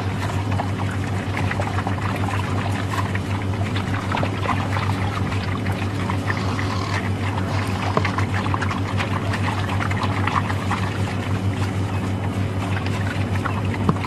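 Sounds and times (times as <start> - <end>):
steady low hum: 0.0 - 14.0
water splashing and pouring: 0.0 - 14.0.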